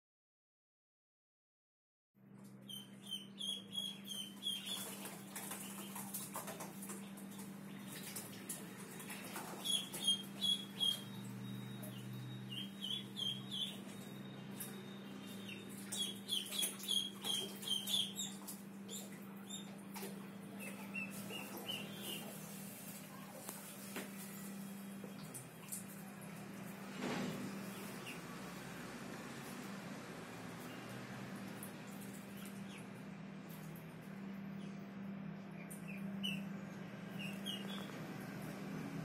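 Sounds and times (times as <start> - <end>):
ducklings peeping: 2.7 - 22.4, 27.7 - 28.2, 35.5 - 38.0.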